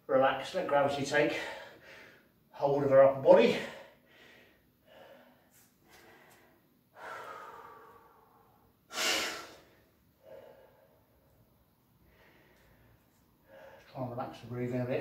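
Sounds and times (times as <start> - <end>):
man breathing hard: 1.3 - 2.4, 3.5 - 11.4, 12.0 - 13.9.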